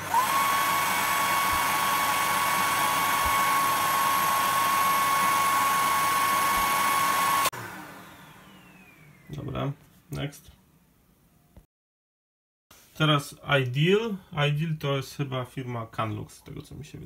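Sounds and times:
hair dryer running: 0.0 - 9.4
motor winding down: 0.0 - 9.4.

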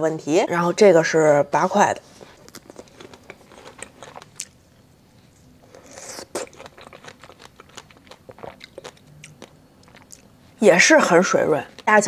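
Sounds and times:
person chewing: 2.2 - 4.6, 5.3 - 10.6.

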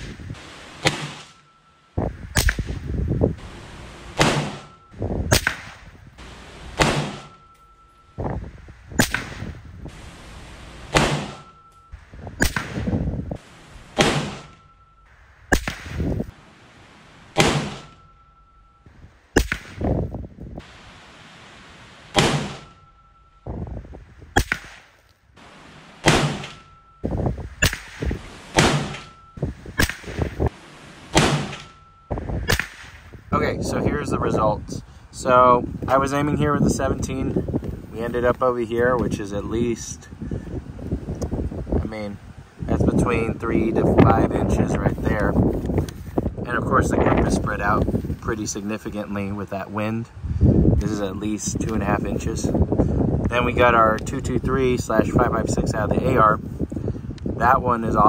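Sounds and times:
rifle shots with ringing tail: 0.0 - 1.7, 2.3 - 8.1, 9.0 - 16.3, 17.3 - 18.8, 22.0 - 23.4, 24.4 - 33.1.

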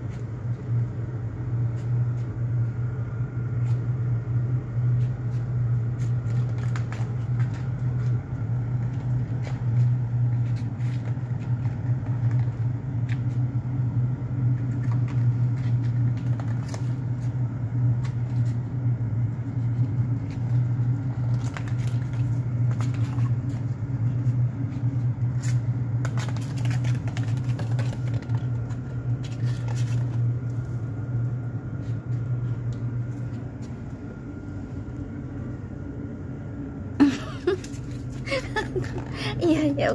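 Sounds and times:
low machine hum: 0.0 - 39.9
foil ball crinkling on tiles: 19.6 - 30.8.

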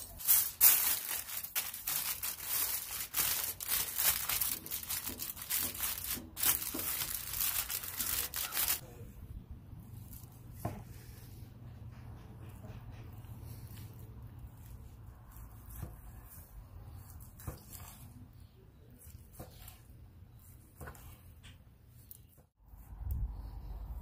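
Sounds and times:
aluminium foil crinkling: 0.0 - 8.8.

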